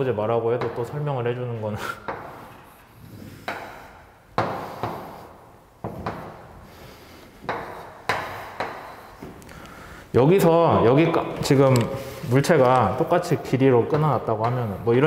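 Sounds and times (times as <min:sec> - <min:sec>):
chalk tapping on blackboard: 0:02.0 - 0:02.8, 0:03.4 - 0:06.8, 0:07.4 - 0:09.4.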